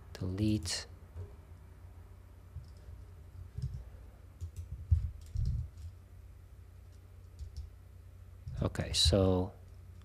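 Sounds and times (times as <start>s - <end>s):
computer clicks and taps: 4.4s - 5.9s, 7.3s - 7.7s.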